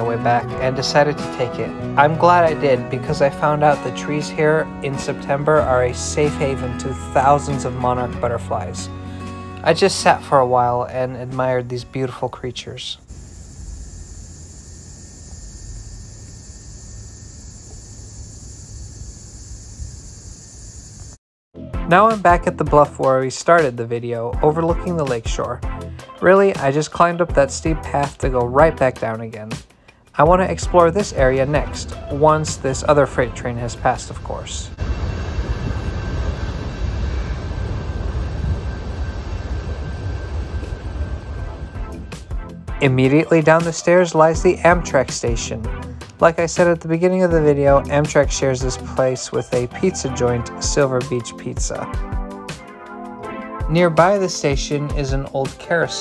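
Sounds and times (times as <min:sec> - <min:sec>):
insects chorus: 0:13.0 - 0:21.2
low rumble: 0:31.4 - 0:42.8.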